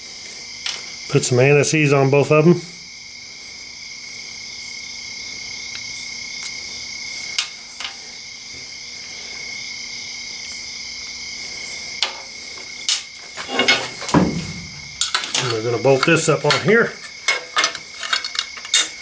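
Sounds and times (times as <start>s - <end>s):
insects trilling: 0.0s - 19.0s
small parts clicking: 14.9s - 19.0s.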